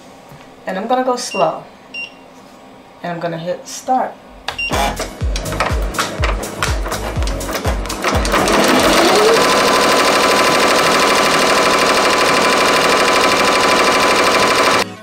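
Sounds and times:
embroidery machine stitching: 6.8 - 14.9
machine motor whine: 7.2 - 15.0.

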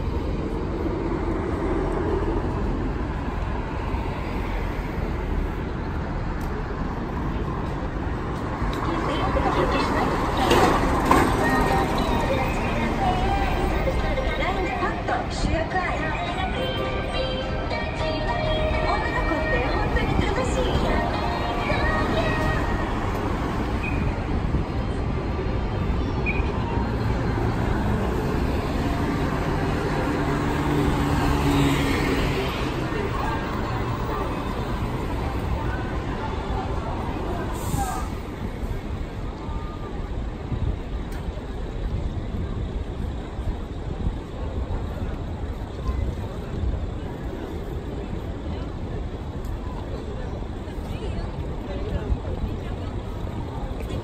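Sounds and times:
tyres passing: 0.0 - 39.3
car and bus engines: 0.0 - 54.0.

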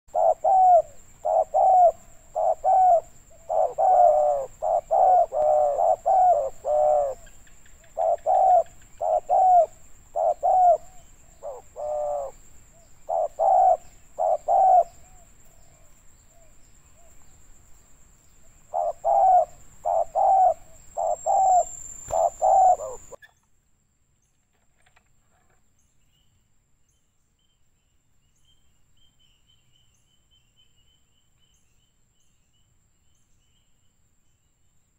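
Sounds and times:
dove cooing: 0.1 - 12.4, 13.0 - 17.2, 18.7 - 23.2.

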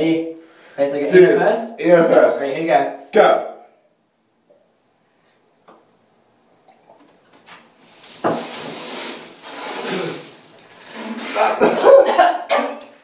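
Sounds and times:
breathy spluttering and huffing: 9.4 - 12.0.

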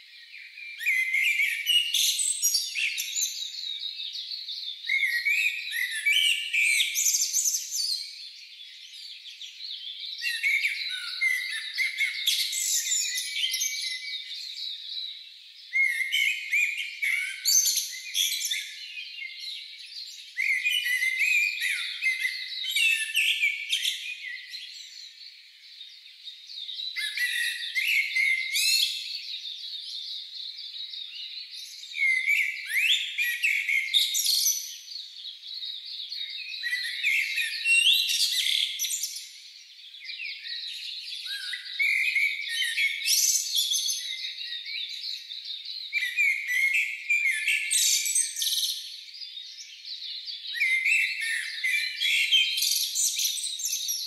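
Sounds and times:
songbirds singing and chirping: 0.0 - 54.0.

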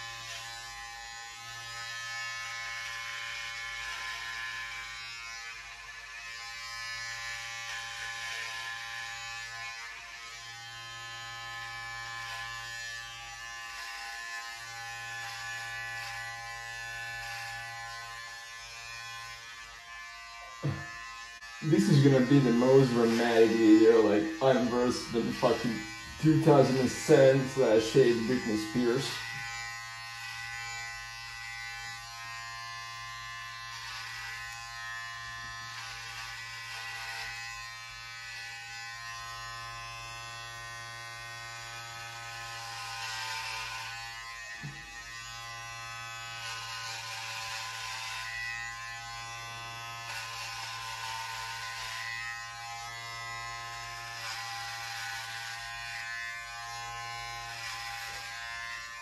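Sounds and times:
electric hair clippers buzzing: 0.0 - 59.0
blades hissing through hair: 12.0 - 39.0, 40.0 - 59.0.

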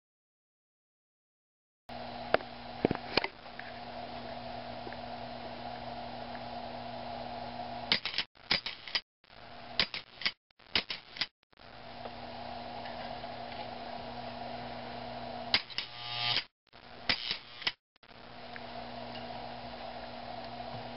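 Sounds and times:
low electrical hum: 1.9 - 20.9
sharp clicks: 9.8 - 11.3, 17.1 - 17.8.

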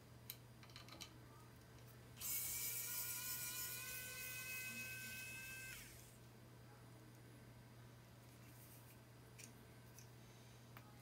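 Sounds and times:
electric screwdriver motor whine: 2.2 - 6.1.

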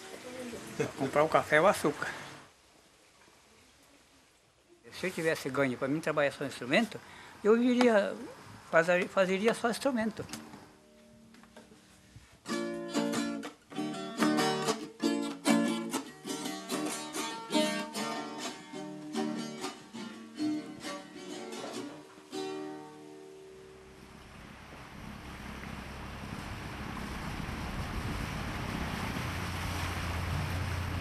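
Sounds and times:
small guitar strummed in chords: 12.5 - 23.6.

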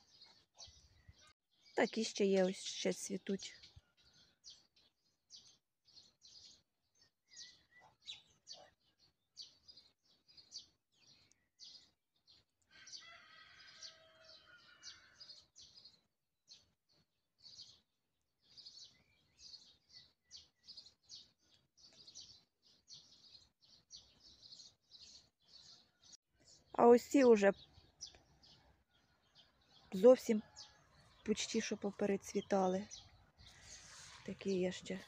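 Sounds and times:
songbirds chirping: 0.0 - 35.0.

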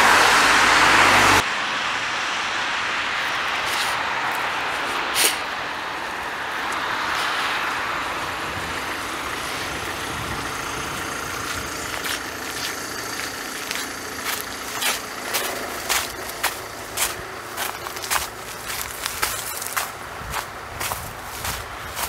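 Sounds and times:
passing vehicles: 0.0 - 22.0
footsteps on pavement: 3.5 - 7.9, 10.8 - 22.0.

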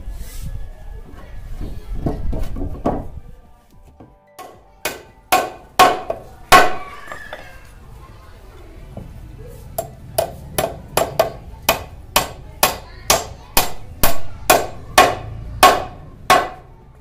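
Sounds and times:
hammer striking wood: 4.4 - 6.9, 9.8 - 16.7.

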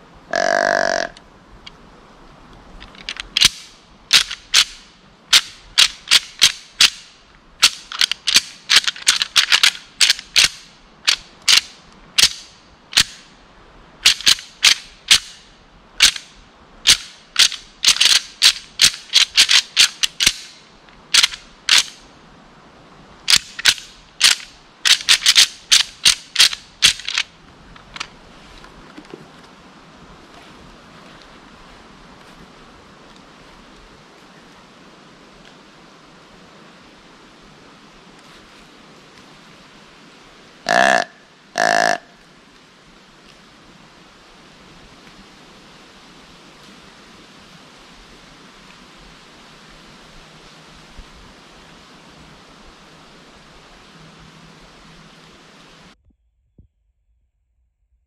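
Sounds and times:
deer rattling call clacks: 0.3 - 1.2, 2.8 - 13.3, 14.0 - 15.4, 16.0 - 22.0, 23.3 - 27.3, 40.7 - 42.0.

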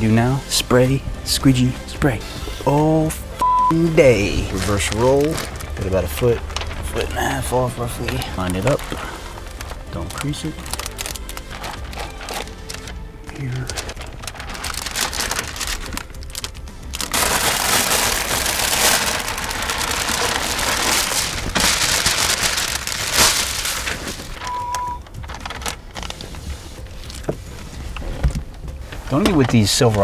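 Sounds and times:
short beep: 3.4 - 3.8, 24.4 - 25.0
handling noises: 3.8 - 30.0.

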